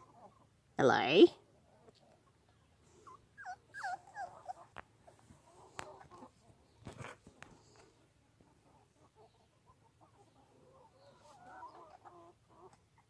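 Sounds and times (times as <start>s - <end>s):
puppies whimpering: 2.9s - 6.4s.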